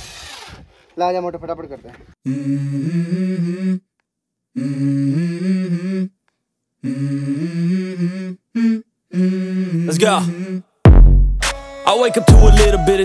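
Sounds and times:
person humming a melody: 2.2 - 3.9, 4.5 - 6.2, 6.8 - 10.7, 12.0 - 13.0.

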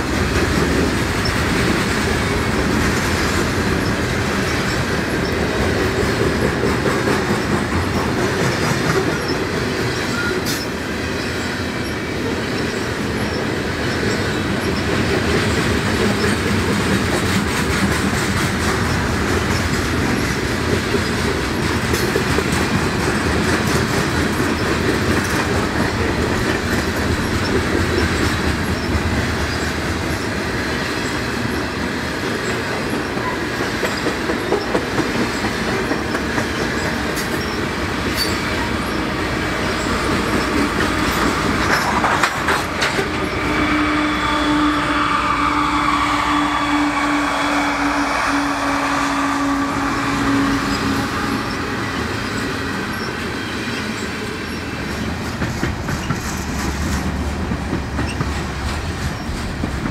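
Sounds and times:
wheels clattering on rails: 0.0 - 43.7, 49.8 - 59.9
freight train cars rumbling: 0.0 - 59.9.

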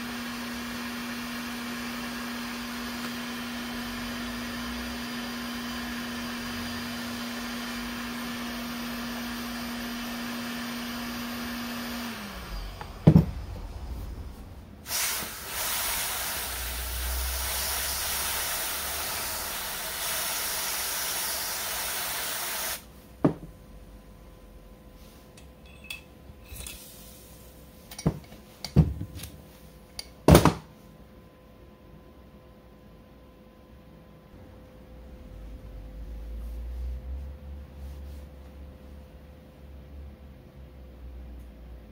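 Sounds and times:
aerosol spray can hissing: 14.9 - 22.8
heat gun humming: 14.9 - 22.9.

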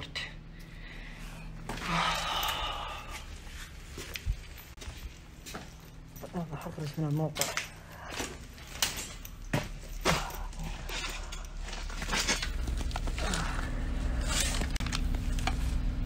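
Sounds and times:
low steady hum: 0.0 - 16.0
rustling and scraping: 7.4 - 16.0.

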